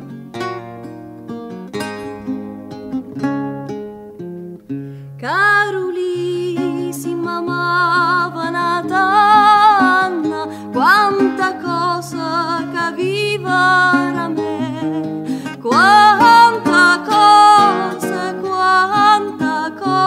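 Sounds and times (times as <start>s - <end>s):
plucked acoustic guitar: 0.0s - 20.0s
person singing with vibrato: 5.2s - 20.0s.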